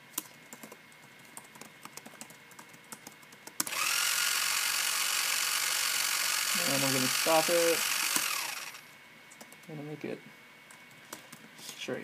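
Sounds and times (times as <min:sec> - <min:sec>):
toy car motor whining: 0:03.7 - 0:08.8.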